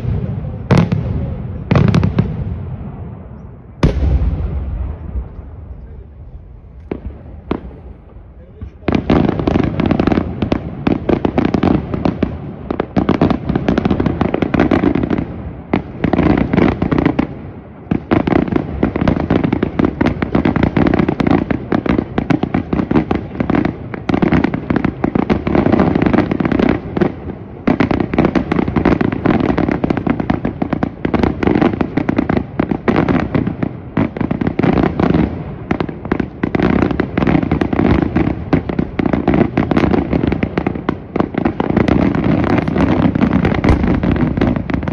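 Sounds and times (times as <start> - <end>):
firework shells bursting: 41.8 - 44.9.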